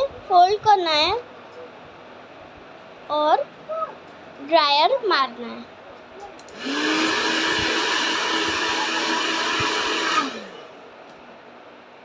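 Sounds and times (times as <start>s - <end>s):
hair dryer blowing: 6.5s - 10.8s.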